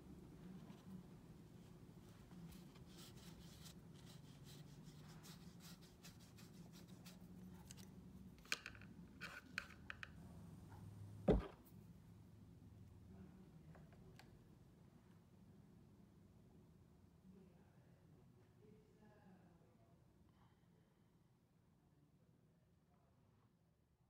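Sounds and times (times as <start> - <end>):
brush scrubbing on paper: 2.5 - 7.4
soft thump: 11.3 - 11.6.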